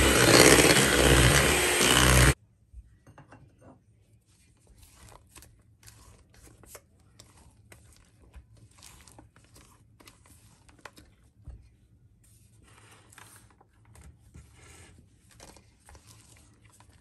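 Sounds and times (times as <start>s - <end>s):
spatula scraping bowl: 0.0s - 2.4s.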